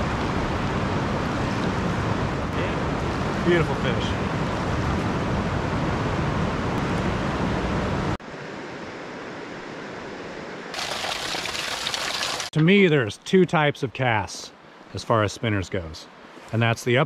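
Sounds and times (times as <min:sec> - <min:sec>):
rushing river water: 0:10.7 - 0:12.6.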